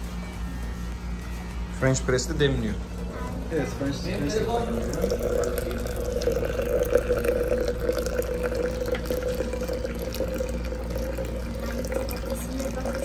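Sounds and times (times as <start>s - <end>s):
ringing tone from jug: 2.6s - 13.0s
water pouring into glass jug: 4.1s - 13.0s.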